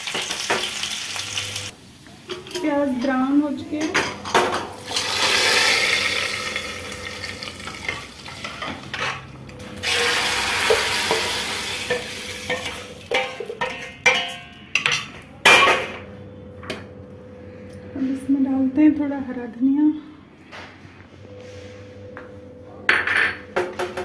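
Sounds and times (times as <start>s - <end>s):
oil sizzling in a frying pan: 0.0s - 3.0s, 4.8s - 8.8s, 9.8s - 13.3s
steel ladle clinking and scraping: 9.8s - 15.6s.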